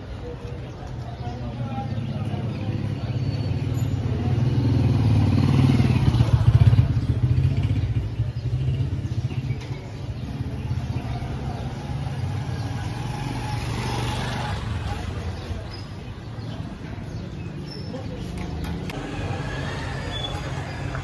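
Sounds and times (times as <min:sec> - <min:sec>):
street traffic: 0:00.0 - 0:21.0
motorcycle passing by: 0:03.6 - 0:15.7, 0:18.6 - 0:21.0.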